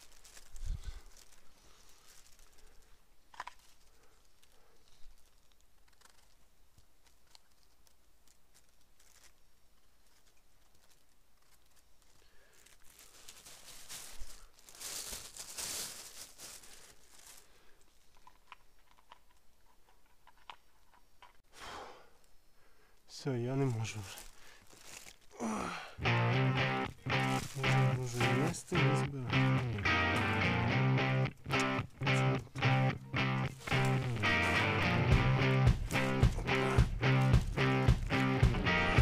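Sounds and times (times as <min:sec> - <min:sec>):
twigs cracking: 0:00.0 - 0:19.3, 0:23.5 - 0:39.0
footsteps on forest floor: 0:27.0 - 0:28.6, 0:32.6 - 0:39.0.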